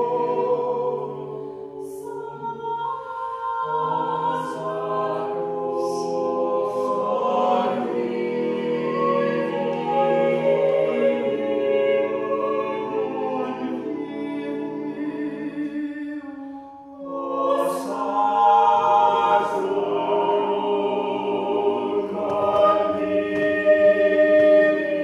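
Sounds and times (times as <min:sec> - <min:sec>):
choir singing in sustained chords: 0:00.0 - 0:25.0.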